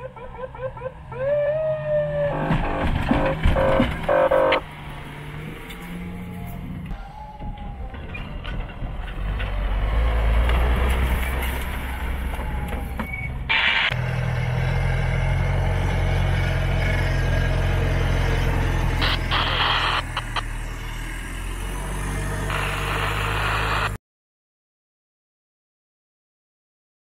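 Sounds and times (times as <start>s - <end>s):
engine running with low hum: 0.0s - 6.9s, 8.0s - 24.0s
pickup truck engine driving: 8.3s - 24.0s.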